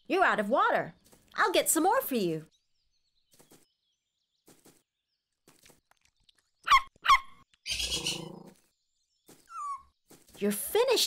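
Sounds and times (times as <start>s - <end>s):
cartoon puppy yipping: 6.7s - 8.2s, 9.5s - 9.8s.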